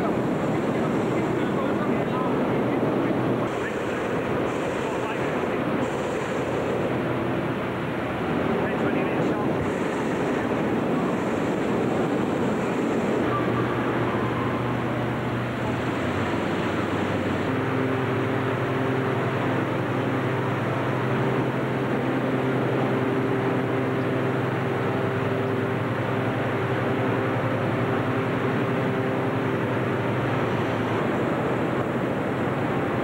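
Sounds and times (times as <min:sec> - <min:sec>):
deep engine hum: 0:00.0 - 0:33.0
inflator fans droning: 0:00.0 - 0:33.0.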